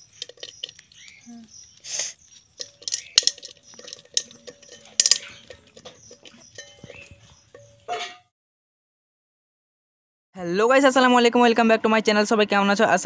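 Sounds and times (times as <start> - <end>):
fish trap knocking against pot: 2.6 - 7.9.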